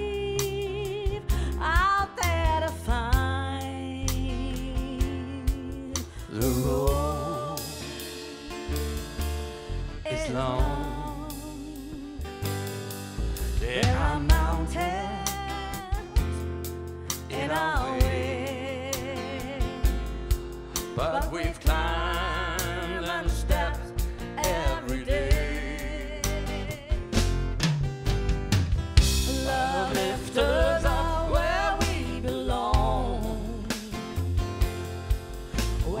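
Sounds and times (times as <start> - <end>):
acoustic guitar: 0.0 - 36.0
double bass: 0.0 - 36.0
drum kit: 0.0 - 36.0
person singing with vibrato: 4.0 - 8.7, 10.0 - 12.4, 13.6 - 16.5, 17.2 - 19.9, 20.8 - 27.1, 29.2 - 34.1, 35.8 - 36.0.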